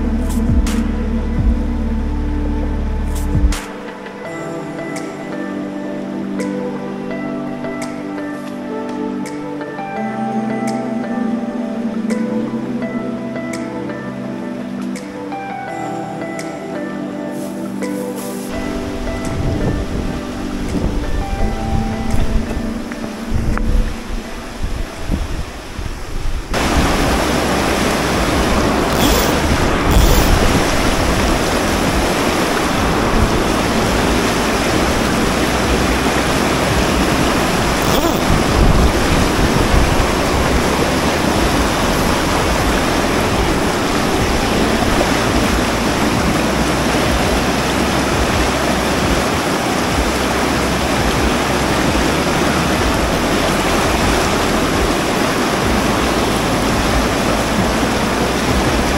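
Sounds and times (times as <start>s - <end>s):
wind rumble on microphone: 0.0s - 3.6s, 18.5s - 58.9s
river rapids rushing: 0.0s - 58.9s.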